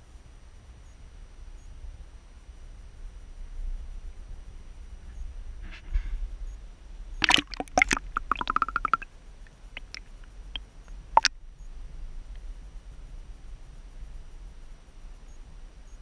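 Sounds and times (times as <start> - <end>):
water splashing and bubbling: 7.2 - 9.0, 9.8 - 10.0.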